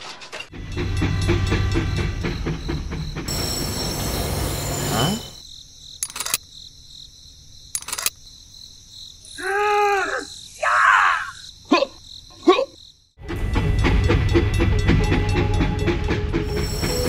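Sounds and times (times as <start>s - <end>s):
crickets chirping: 0.6s - 13.2s
short clicks: 6.0s - 6.4s, 7.7s - 8.2s
cartoon-like voice sounds: 9.4s - 12.8s.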